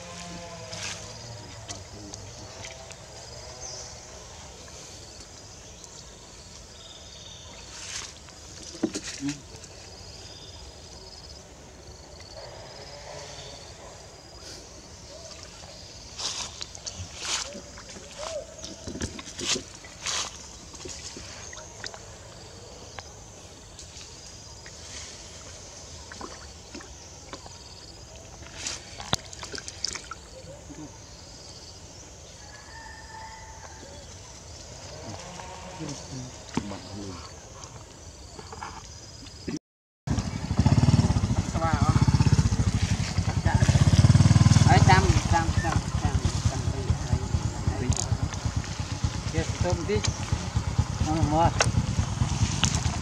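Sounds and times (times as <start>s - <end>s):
faint bird or insect calls: 0.0s - 53.0s
water splashing in a tub: 15.2s - 22.4s, 25.4s - 30.4s
monkeys splashing in water: 25.4s - 30.4s.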